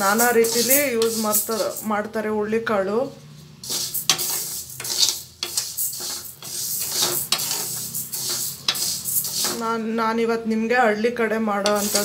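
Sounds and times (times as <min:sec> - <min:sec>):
seeds rattling in metal pan: 0:00.0 - 0:01.9, 0:03.6 - 0:09.7, 0:11.6 - 0:12.0
wooden spatula stirring seeds: 0:00.0 - 0:02.0, 0:03.4 - 0:09.8, 0:11.6 - 0:12.0.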